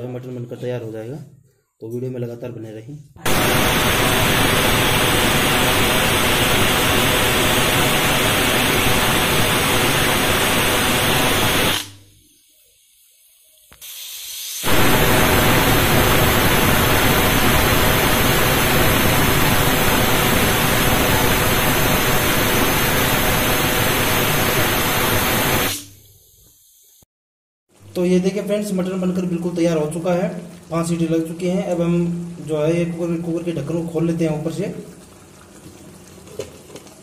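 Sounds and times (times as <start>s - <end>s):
pressure cooker steam hissing: 3.3s - 27.0s.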